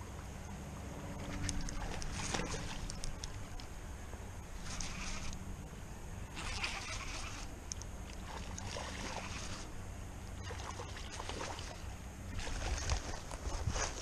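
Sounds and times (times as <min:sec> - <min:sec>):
steady background rush: 0:00.0 - 0:14.0
fishing reel winding: 0:04.6 - 0:05.4, 0:06.3 - 0:07.8.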